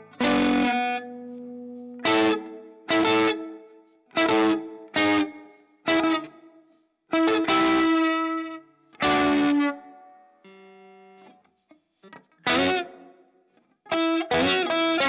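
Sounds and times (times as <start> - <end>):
electric guitar chords with fuzz: 0.0 - 6.4, 7.2 - 11.2, 12.5 - 13.1, 13.9 - 15.0.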